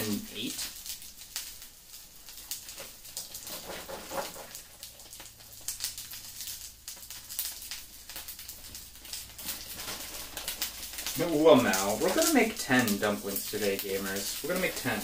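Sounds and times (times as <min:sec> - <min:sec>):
dumplings sizzling in oil: 0:00.0 - 0:15.0.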